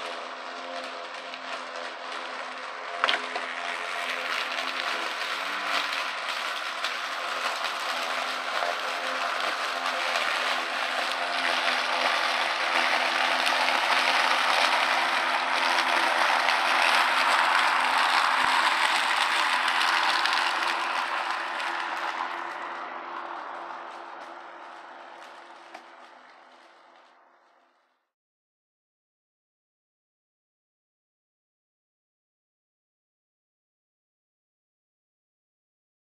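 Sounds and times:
mower blade rushing: 0:00.0 - 0:27.8
electric lawn mower motor hum: 0:00.0 - 0:27.9.

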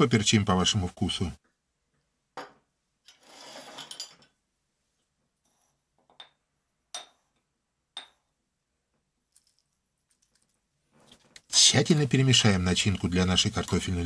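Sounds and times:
metal spoon clinking glass dishes: 0:03.1 - 0:04.3.

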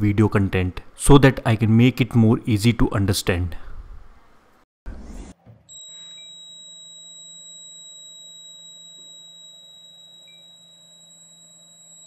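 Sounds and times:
high-pitched alarm buzzer: 0:05.7 - 0:12.0.

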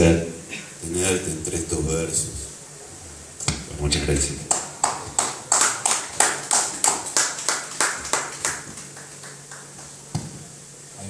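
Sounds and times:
sparse applause: 0:04.5 - 0:10.1
single knock: 0:10.1 - 0:10.4.

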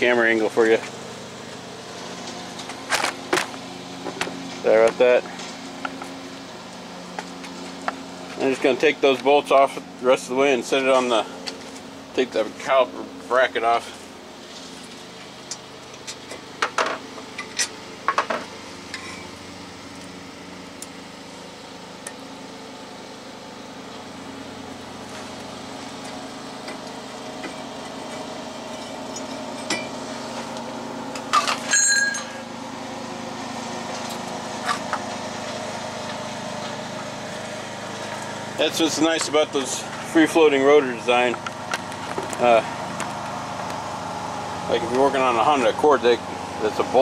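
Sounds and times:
steady motor drone: 0:00.0 - 0:47.0
metal tools clinking: 0:18.9 - 0:19.3, 0:27.4 - 0:30.0, 0:31.2 - 0:32.4.

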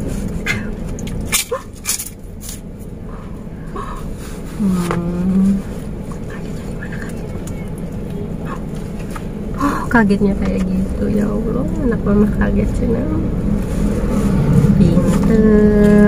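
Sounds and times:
low hum inside car: 0:00.0 - 0:16.0.

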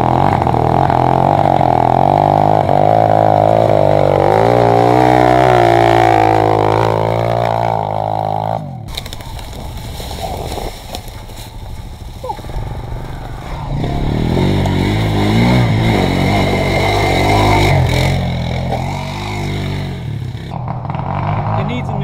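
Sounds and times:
engine revving with wavering pitch: 0:00.0 - 0:08.9, 0:13.4 - 0:22.0
pit bike engine at low revs: 0:00.0 - 0:22.0.

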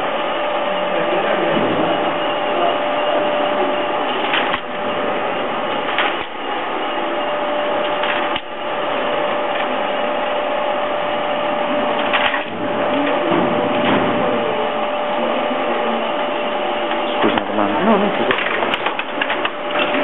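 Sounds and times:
constant hum: 0:00.0 - 0:20.0
printing press clattering: 0:00.0 - 0:20.0
loud mechanical knocks: 0:01.4 - 0:02.0, 0:05.7 - 0:06.4, 0:11.9 - 0:14.4, 0:17.0 - 0:17.6.

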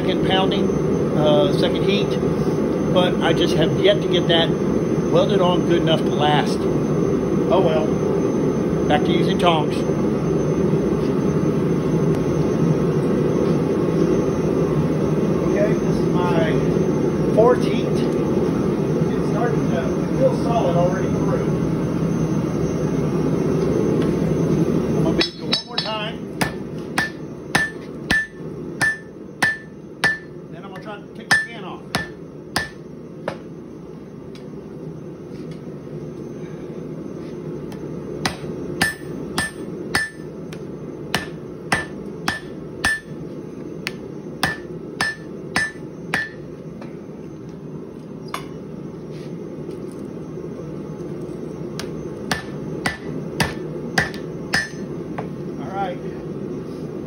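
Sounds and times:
hammer blows ringing on anvil: 0:25.2 - 0:33.4, 0:38.2 - 0:40.3, 0:41.2 - 0:43.2, 0:43.9 - 0:46.4, 0:51.8 - 0:54.9.

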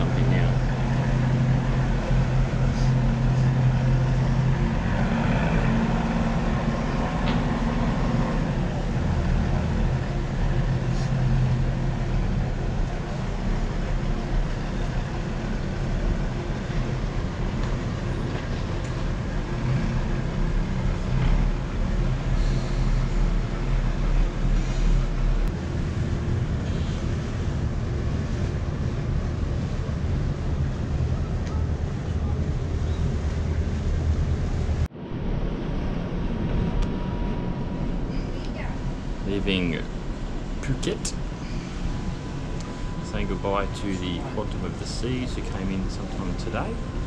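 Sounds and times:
boat engine hum: 0:00.0 - 0:47.0.

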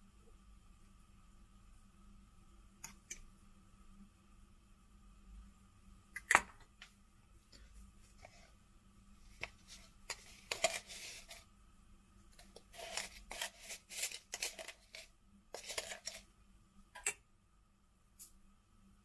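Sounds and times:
kitchen scrapes and rustles: 0:09.2 - 0:11.5, 0:12.3 - 0:16.3.

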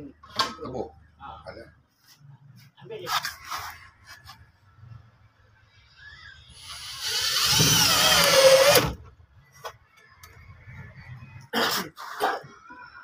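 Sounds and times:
electric drill driving a screw: 0:06.6 - 0:09.0.

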